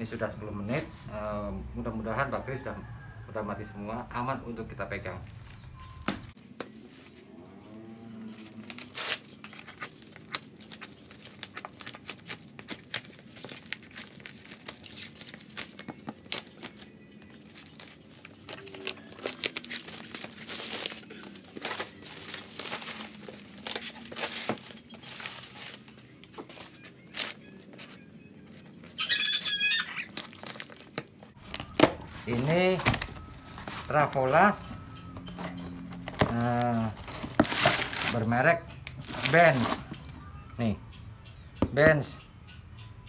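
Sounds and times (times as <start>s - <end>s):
plastic crinkling and tearing: 8.1s - 40.0s.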